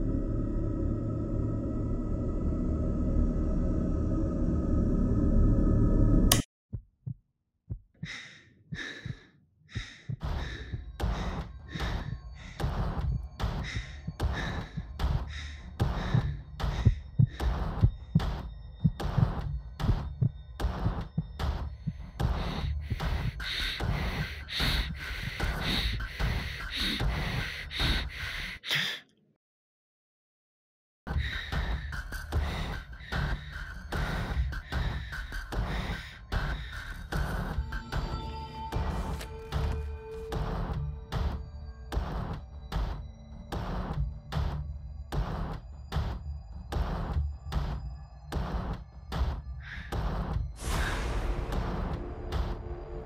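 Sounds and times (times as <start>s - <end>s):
low rumble: 0.0s - 6.4s, 43.7s - 53.0s
music: 0.0s - 6.4s, 8.0s - 28.7s, 31.1s - 53.0s
person breathing heavily: 8.0s - 18.5s, 21.6s - 29.1s, 31.1s - 41.4s, 49.4s - 52.6s.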